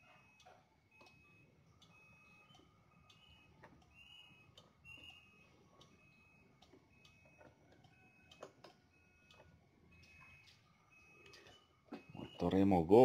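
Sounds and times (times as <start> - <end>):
faint regular ticking: 5.8 - 6.0.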